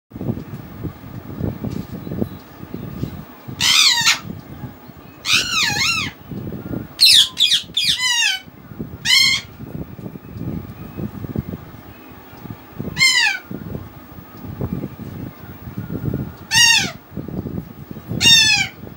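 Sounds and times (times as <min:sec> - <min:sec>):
high-pitched animal calls: 0:05.2 - 0:06.2, 0:07.0 - 0:09.5, 0:13.0 - 0:13.5, 0:16.5 - 0:17.0, 0:18.2 - 0:18.8.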